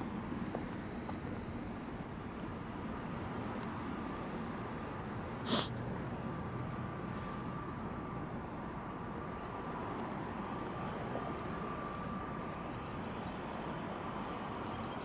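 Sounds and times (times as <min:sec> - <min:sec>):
outdoor background noise: 0:00.0 - 0:15.0
short sharp hissy burst: 0:05.5 - 0:05.7.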